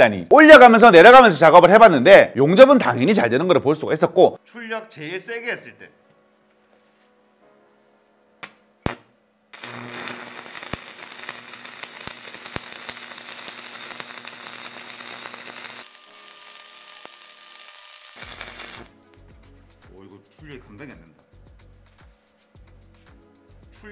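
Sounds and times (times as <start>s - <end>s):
welding arc crackling sizzle: 8.9s - 19.0s.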